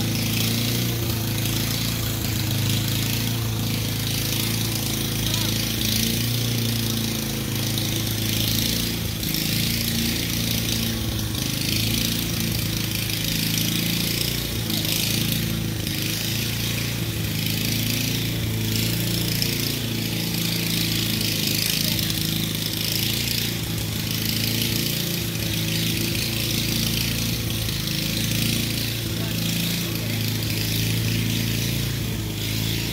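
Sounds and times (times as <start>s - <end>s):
small petrol engine running: 0.0s - 32.9s.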